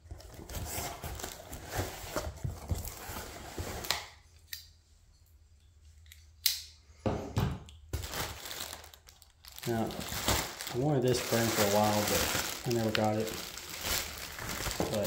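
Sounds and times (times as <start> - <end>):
cardboard flaps folding: 9.6 - 15.0.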